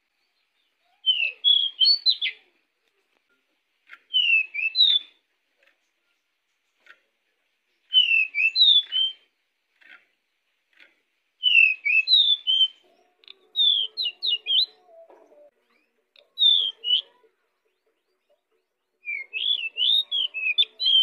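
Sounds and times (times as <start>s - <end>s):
bird singing whistled notes: 0.3s - 2.4s, 4.1s - 5.2s, 7.8s - 9.3s, 11.4s - 14.9s, 15.6s - 18.2s, 19.0s - 21.0s.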